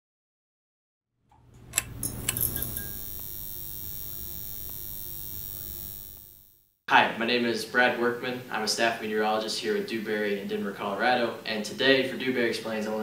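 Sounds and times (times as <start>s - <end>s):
low hum with ringing tones: 1.6s - 6.6s
sharp bright ticks: 1.7s - 6.6s.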